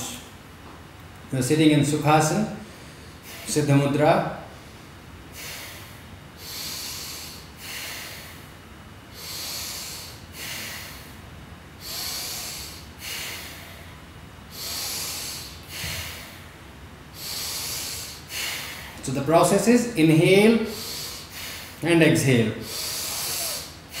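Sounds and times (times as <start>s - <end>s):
man breathing loudly: 2.6s - 3.7s, 4.4s - 19.6s, 20.5s - 21.8s, 22.6s - 24.0s.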